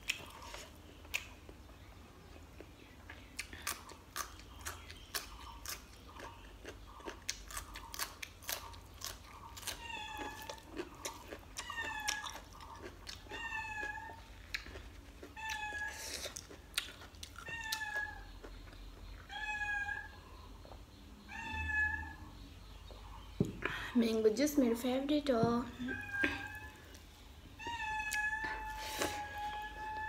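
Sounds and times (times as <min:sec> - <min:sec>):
wet chewing clicks: 0:02.5 - 0:19.1
cat meowing: 0:21.3 - 0:22.2, 0:25.8 - 0:26.8.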